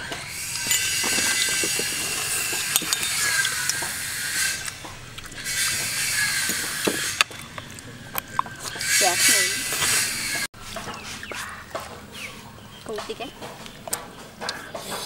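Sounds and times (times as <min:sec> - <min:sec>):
spoon scraping a plate: 0:00.5 - 0:04.8.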